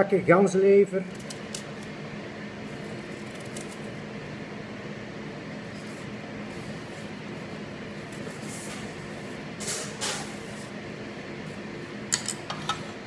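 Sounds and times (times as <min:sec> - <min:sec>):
machine hum: 0:00.0 - 0:13.0
knife peeling apple: 0:02.9 - 0:03.9.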